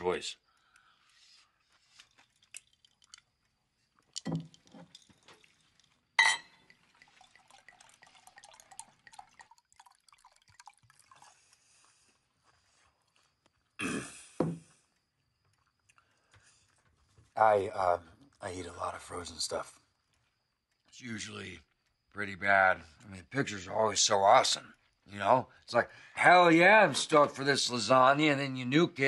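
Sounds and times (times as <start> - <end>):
cutlery clinking on plates: 6.2 - 6.6.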